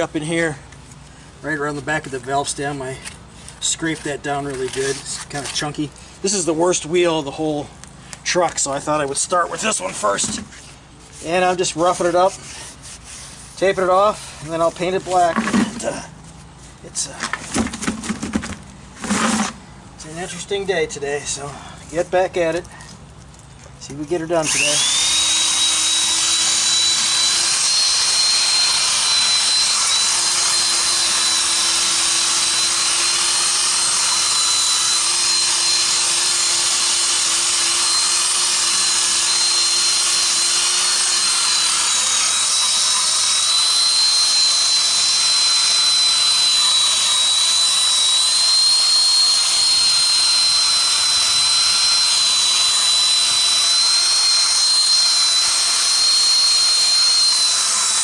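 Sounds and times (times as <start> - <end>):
electric drill motor whine: 24.4 - 58.0.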